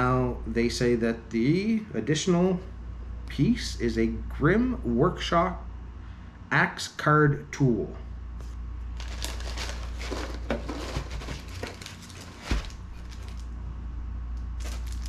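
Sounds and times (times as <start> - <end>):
steady low hum: 0.0 - 15.0
packaging crinkling and rustling: 8.9 - 13.6, 14.4 - 15.0.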